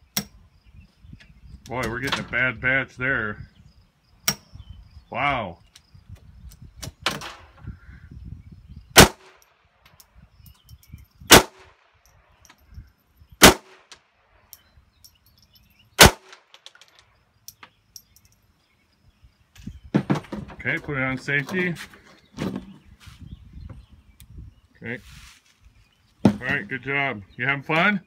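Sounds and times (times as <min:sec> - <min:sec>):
pistol shots: 0:09.0 - 0:09.4, 0:11.3 - 0:11.8, 0:13.4 - 0:13.9, 0:16.0 - 0:16.5.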